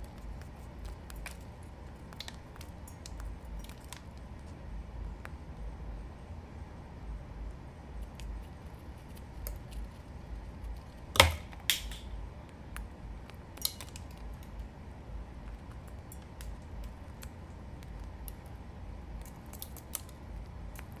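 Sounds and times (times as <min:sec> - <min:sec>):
parrot cracking a peanut: 0:00.0 - 0:04.6, 0:08.0 - 0:14.7, 0:15.5 - 0:18.5, 0:19.2 - 0:21.0.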